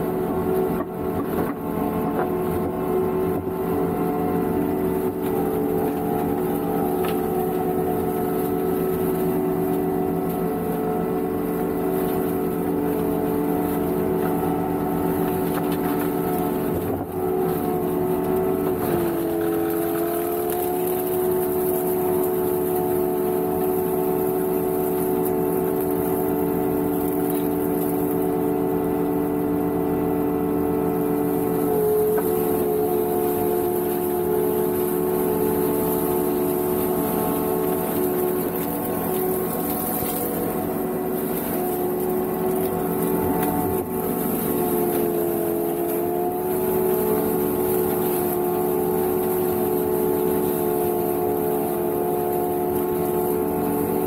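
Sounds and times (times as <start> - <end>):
boom mower engine droning: 0.0 - 54.0
flail cutting dry brush: 31.5 - 54.0.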